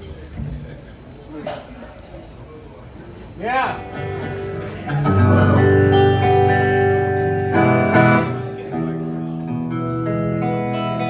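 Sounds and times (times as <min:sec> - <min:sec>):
electric guitars through amplifiers: 0:03.2 - 0:11.0.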